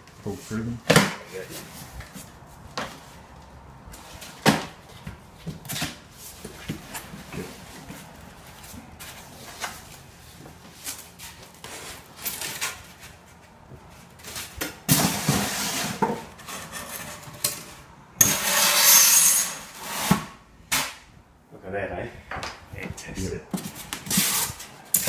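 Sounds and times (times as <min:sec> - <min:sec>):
foam packing scraping: 0:23.6 - 0:24.7.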